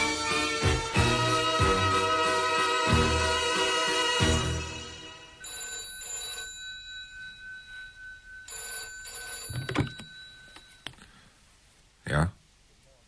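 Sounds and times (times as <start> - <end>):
telephone ringing: 5.3 - 11.2
receiver picked up clunk: 9.4 - 11.1.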